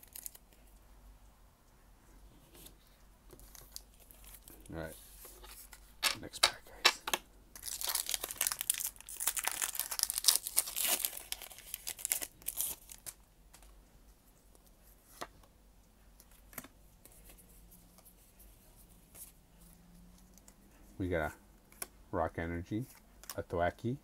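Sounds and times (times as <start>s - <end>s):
foil wrapper crinkling and tearing: 0.0s - 0.4s, 7.6s - 13.2s.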